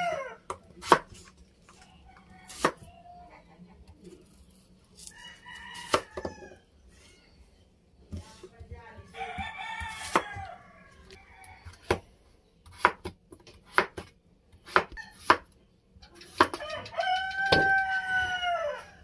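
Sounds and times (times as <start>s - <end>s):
rooster crowing: 0.0s - 0.4s, 5.1s - 6.7s, 9.2s - 11.8s, 16.6s - 19.0s
knife chopping on wooden board: 2.5s - 2.8s, 5.8s - 6.3s, 9.4s - 10.5s, 12.6s - 15.5s, 16.2s - 16.6s.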